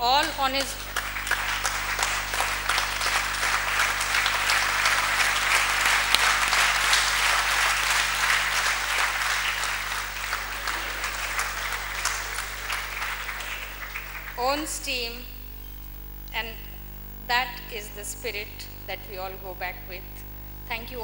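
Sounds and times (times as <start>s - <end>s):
audience applauding: 0.0s - 15.3s.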